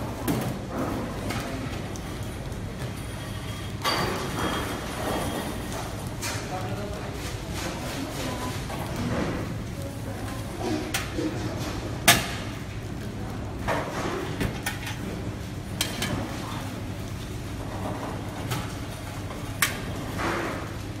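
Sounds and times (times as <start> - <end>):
metal tray and baskets clattering: 2.8 - 9.4
plastic sheet rustling: 5.5 - 14.4.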